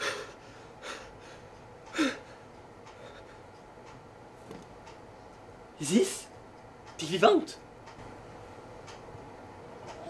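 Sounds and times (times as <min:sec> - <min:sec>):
man gasping: 0:00.0 - 0:02.4
man breathing hard: 0:00.0 - 0:03.5.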